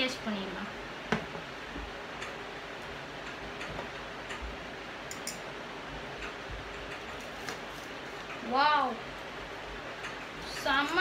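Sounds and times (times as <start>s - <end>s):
cutlery tapping on a ceramic plate: 5.1s - 5.5s.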